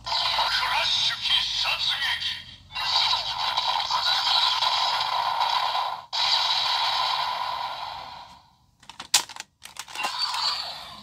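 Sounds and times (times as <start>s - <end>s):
toy speaker crackling sound effect: 0.1s - 5.5s, 9.7s - 11.0s
sharp plastic clicks: 8.8s - 10.1s.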